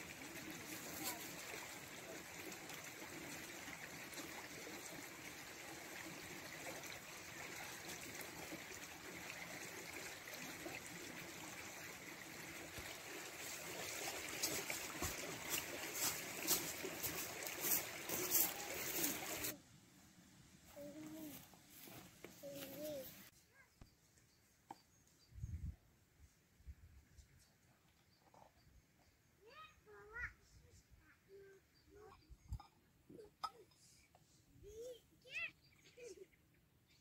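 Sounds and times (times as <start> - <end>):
stream trickling: 0.0 - 19.6.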